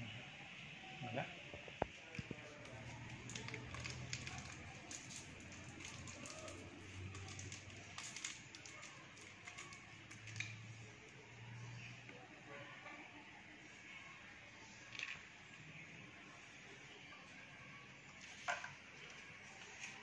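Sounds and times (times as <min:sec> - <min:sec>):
wrapper crinkling: 0:02.3 - 0:11.0.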